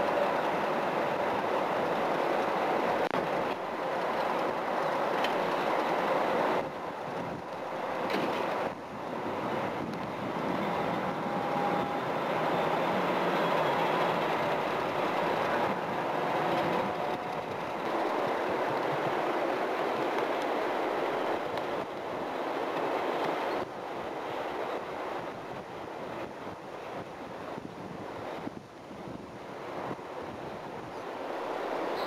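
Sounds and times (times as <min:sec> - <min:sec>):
diesel locomotive rumbling: 0:00.0 - 0:32.0.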